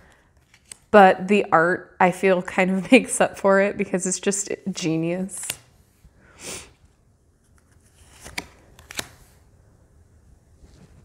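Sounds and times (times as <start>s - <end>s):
card clicks: 8.1s - 9.2s.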